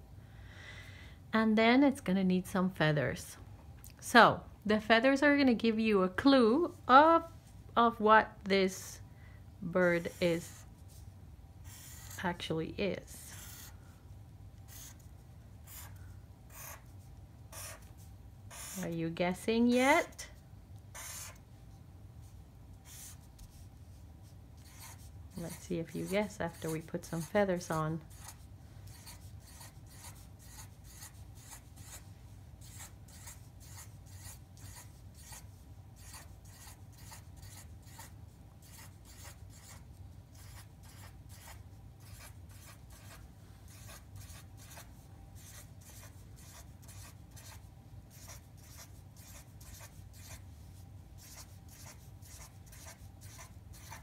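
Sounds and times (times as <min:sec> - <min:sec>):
steady low hum: 0:00.0 - 0:54.0
marker rubbing on paper: 0:09.9 - 0:11.0, 0:11.6 - 0:12.3, 0:13.3 - 0:13.7, 0:14.7 - 0:18.9, 0:20.9 - 0:21.4, 0:22.8 - 0:23.8, 0:24.6 - 0:50.4, 0:51.2 - 0:54.0.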